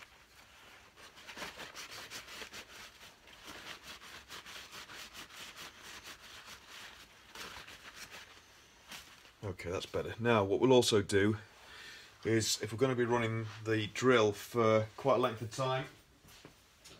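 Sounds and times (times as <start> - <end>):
paper towel rubbing glasses: 0.0 - 10.1.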